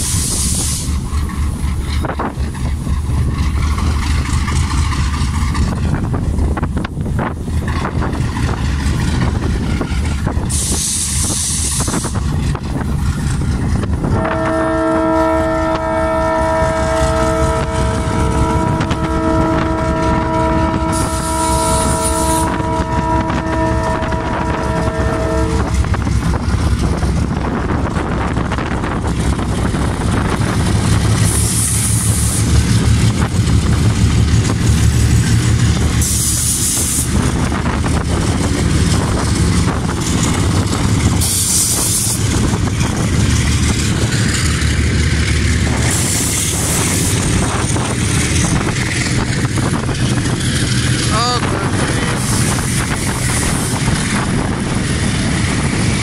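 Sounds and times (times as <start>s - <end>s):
diesel engine rumble: 0.0s - 56.0s
locomotive horn: 14.1s - 25.9s.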